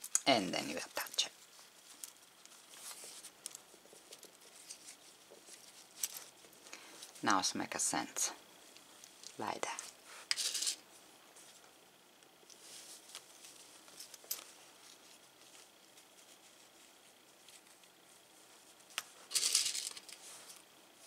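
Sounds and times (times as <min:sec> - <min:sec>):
fabric rustling: 0:00.9 - 0:07.3.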